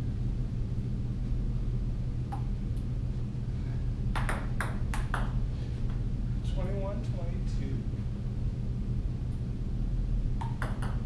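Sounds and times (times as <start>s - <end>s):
low hum: 0.0s - 11.0s
table tennis ball clicks: 10.4s - 11.0s.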